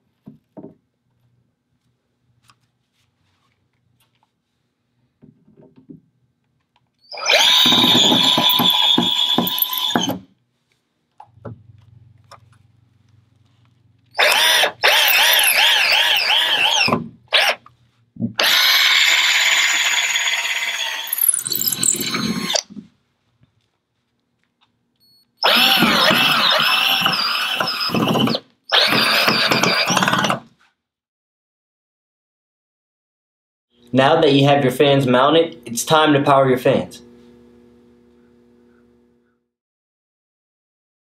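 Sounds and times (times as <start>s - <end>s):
cordless drill whining: 7.0s - 10.3s, 14.1s - 17.6s, 18.4s - 22.7s, 25.4s - 30.5s.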